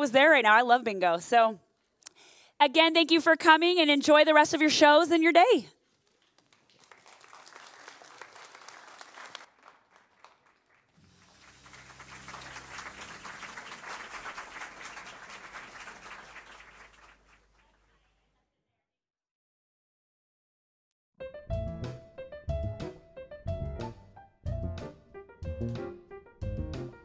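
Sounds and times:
audience applauding: 5.9s - 17.8s.

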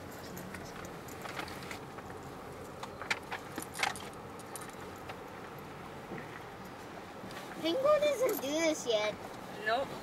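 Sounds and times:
car engine and road hum: 0.0s - 10.0s.

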